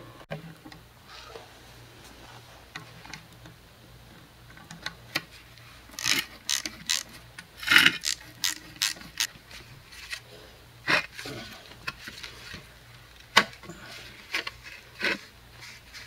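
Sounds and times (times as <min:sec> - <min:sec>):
ratchet tool clicking: 0:06.0 - 0:09.3.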